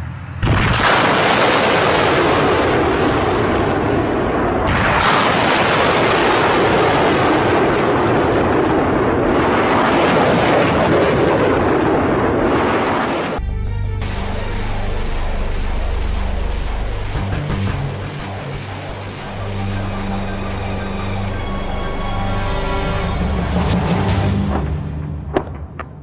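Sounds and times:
rocket exhaust rushing: 14.0s - 24.8s.

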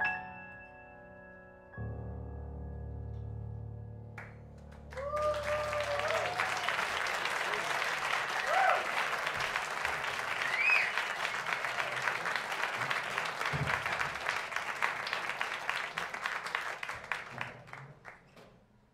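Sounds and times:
audience applauding: 4.2s - 18.3s
cheers: 4.9s - 17.5s.

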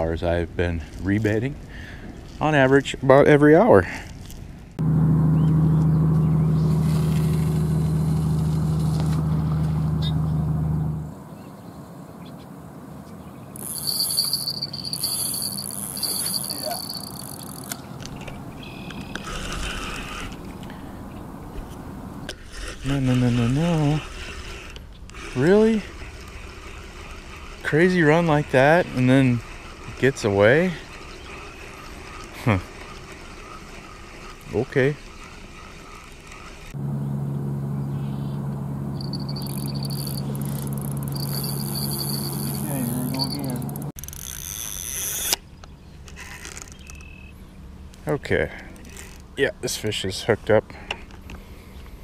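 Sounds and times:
lower-pitched alarm tone: 13.6s - 17.2s, 38.9s - 43.9s
electronic bite alarm tone: 13.6s - 17.5s, 38.9s - 43.9s
fishing reel clicker buzzing: 13.6s - 20.7s, 22.6s - 36.8s, 39.0s - 45.4s, 46.1s - 47.3s, 48.8s - 49.3s.

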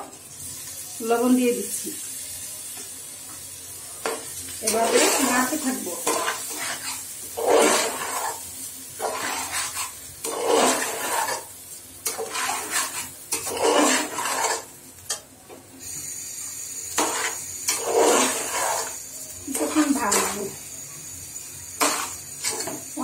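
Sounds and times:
metal spoon scraping rice in saucepan: 4.1s - 8.4s, 9.0s - 14.7s, 16.9s - 20.5s, 21.8s - 22.8s.

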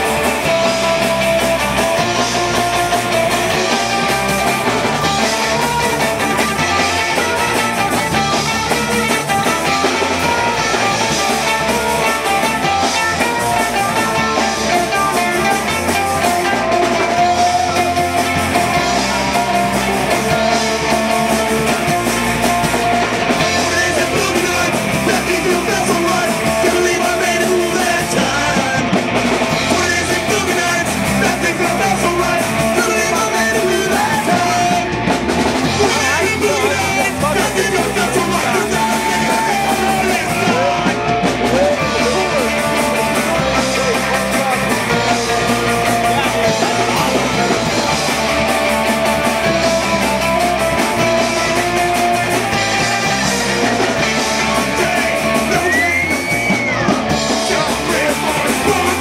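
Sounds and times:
bass notes: 0.0s - 59.0s
punk rock band playing: 0.0s - 59.0s
person singing into microphone: 23.4s - 29.0s, 29.6s - 35.0s, 35.7s - 42.6s, 51.4s - 59.0s.

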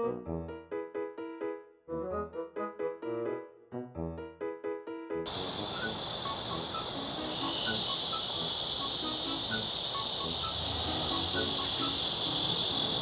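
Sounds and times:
insect chorus buzzing: 5.3s - 13.0s.

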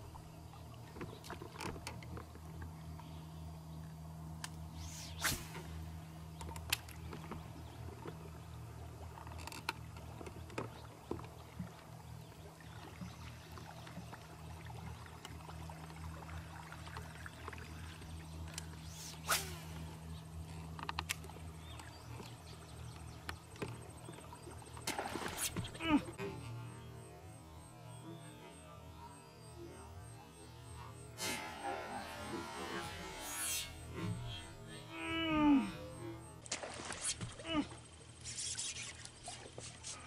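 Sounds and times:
electric trolling motor hum: 0.0s - 40.0s
fishing rod and reel swishes and clicks: 4.4s - 7.4s, 18.4s - 22.0s, 25.2s - 25.8s, 36.4s - 37.4s, 38.2s - 40.0s.

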